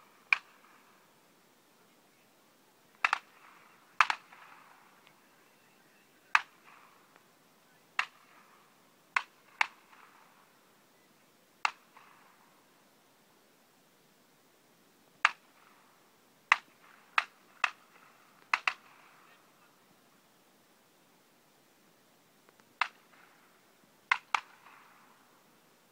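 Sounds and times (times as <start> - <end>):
shotgun shots echoing: 3.0 - 5.0, 6.3 - 7.1, 8.0 - 10.6, 11.6 - 12.5, 16.5 - 19.4, 24.1 - 25.3.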